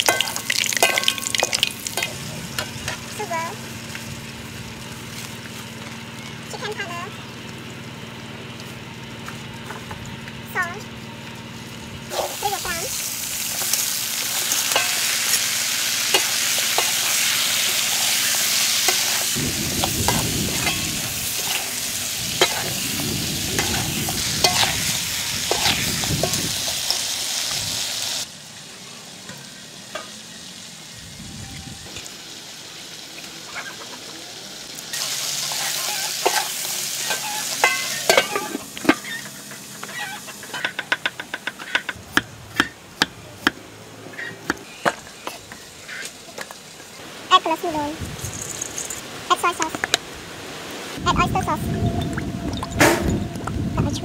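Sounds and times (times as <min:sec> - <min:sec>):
prawns sizzling in a wok: 0:00.0 - 0:09.8, 0:10.8 - 0:51.6
metal spatula scraping: 0:20.6 - 0:22.8, 0:23.6 - 0:26.4, 0:35.4 - 0:40.9.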